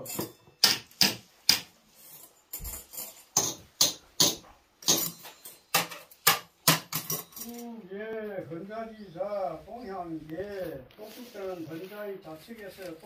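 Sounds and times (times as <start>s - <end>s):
chopsticks and spoon clinking on dishes: 0.0s - 0.9s, 1.6s - 7.7s.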